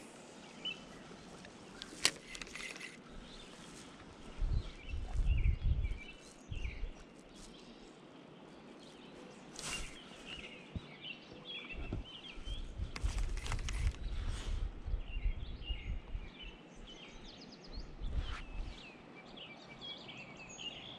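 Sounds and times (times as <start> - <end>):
small birds chirping: 0.0 - 20.9
low rumble on microphone: 4.2 - 7.0, 11.7 - 18.8.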